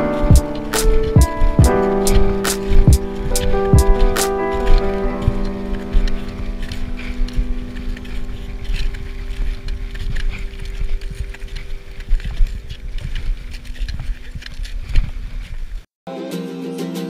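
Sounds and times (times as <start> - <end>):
held music chord: 0.0 - 11.0
wind rumbling on microphone: 0.0 - 15.8.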